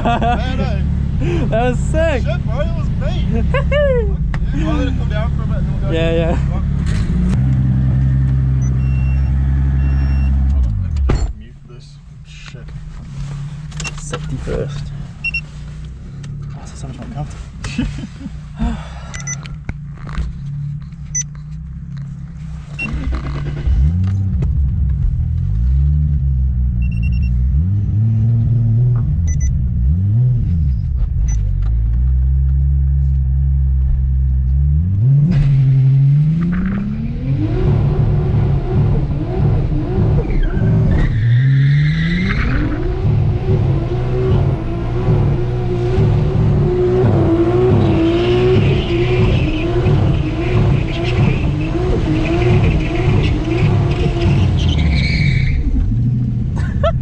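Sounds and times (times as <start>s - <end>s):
car engine revving: 0.0s - 11.2s, 12.3s - 57.0s
tyres screeching: 39.2s - 56.0s.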